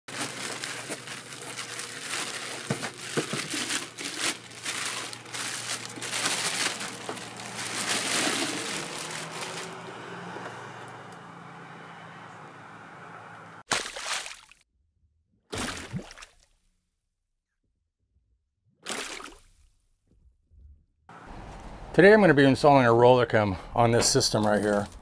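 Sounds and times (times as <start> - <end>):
paper and plastic bag crinkling: 0.1 - 10.0, 24.1 - 25.0.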